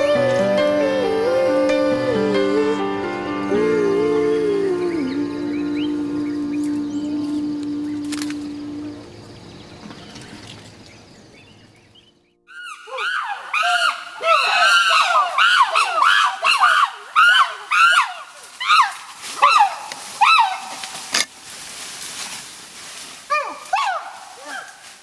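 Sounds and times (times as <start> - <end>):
chimpanzees screaming: 12.5 - 20.9, 23.3 - 24.8.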